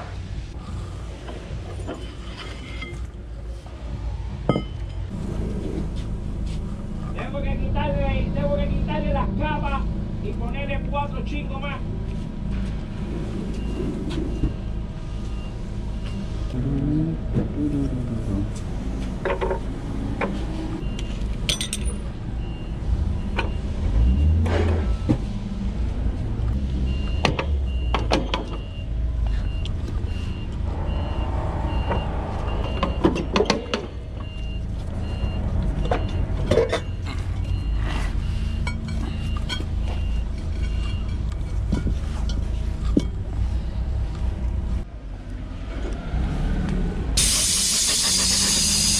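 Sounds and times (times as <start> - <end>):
vehicle engine rumble: 0.0 - 48.9
hand tools clinking on metal: 21.4 - 22.0
reversing alarm beeping: 21.9 - 25.2, 26.8 - 41.2.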